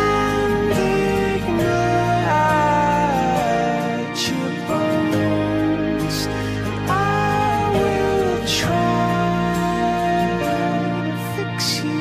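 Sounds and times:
instrumental background music: 0.0s - 12.0s.

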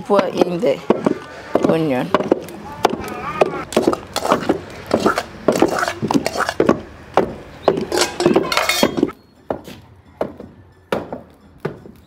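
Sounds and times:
pestle pounding in wooden mortar: 0.3s - 9.6s.

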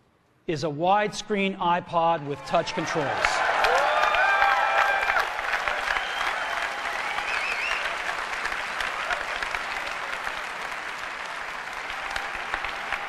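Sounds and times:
audience cheering: 2.5s - 13.0s
audience applauding: 3.1s - 13.0s.

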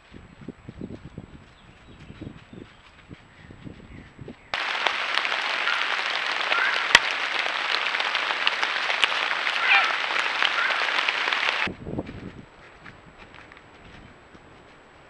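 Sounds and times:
rain pattering on leaves: 4.6s - 11.7s
rustling in dry leaves: 4.6s - 11.7s.

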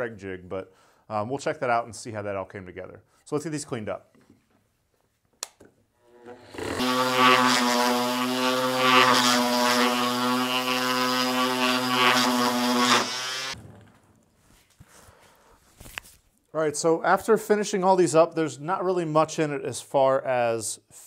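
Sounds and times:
orbit sander on wood: 6.1s - 13.6s.

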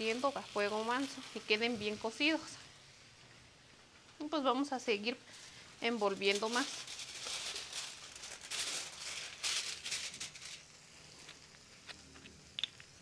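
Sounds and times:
aluminium foil crinkling: 5.2s - 12.4s.

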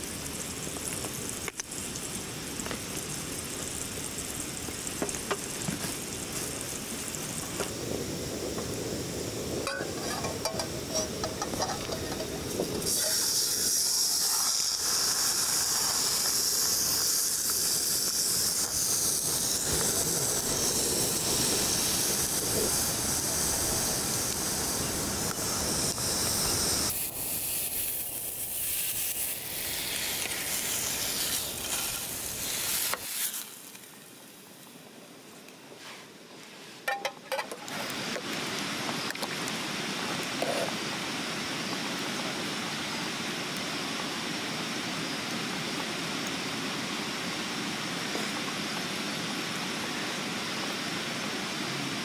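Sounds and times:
food sizzling in a pan: 0.0s - 34.4s.

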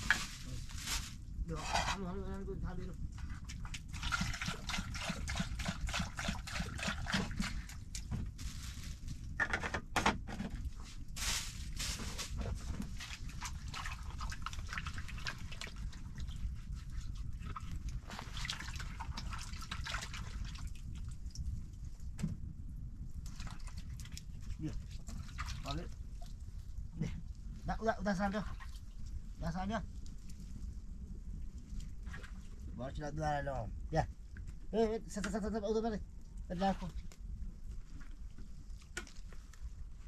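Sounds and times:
water splashing and sloshing: 0.0s - 2.2s, 3.0s - 9.7s, 10.3s - 22.4s, 23.1s - 32.9s, 36.1s - 40.0s
steady low rumble: 0.0s - 4.0s, 20.5s - 25.1s, 25.7s - 40.0s.

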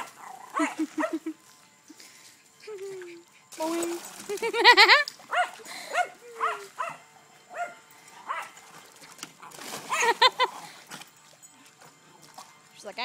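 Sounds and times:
dogs splashing in water: 0.0s - 1.4s, 3.5s - 7.0s, 8.2s - 12.8s
dog barking high-pitched: 5.3s - 8.5s.

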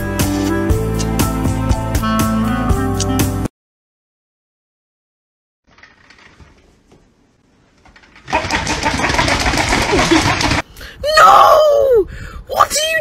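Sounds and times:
toy motor rattling: 8.0s - 10.6s
person crying out: 11.0s - 12.1s.

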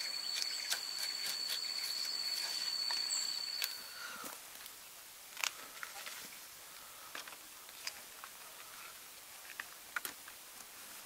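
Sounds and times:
knife cracking and scraping bark: 0.0s - 3.8s
faint steady hiss: 0.0s - 11.0s.

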